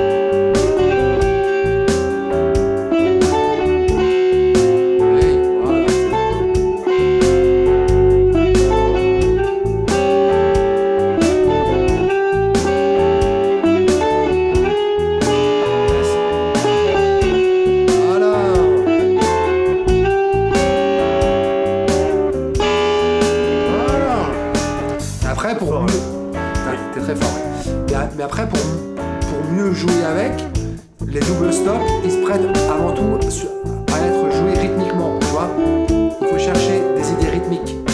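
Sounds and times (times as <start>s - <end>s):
blues backing track drums and bass: 0.0s - 37.9s
electric guitar blues licks: 0.0s - 37.9s.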